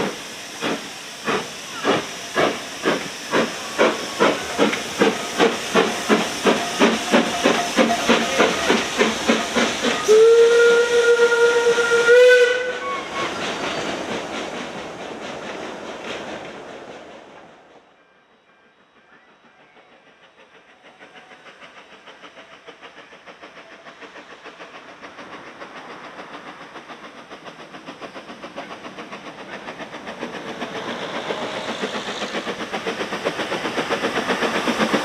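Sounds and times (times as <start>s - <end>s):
steam locomotive exhaust beats: 0.0s - 35.0s
steam whistle: 9.9s - 13.4s.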